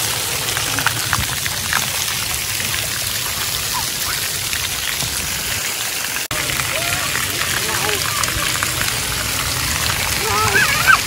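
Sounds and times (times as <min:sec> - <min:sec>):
water jets spraying: 0:00.0 - 0:11.0
water pattering on wet surface: 0:00.0 - 0:11.0.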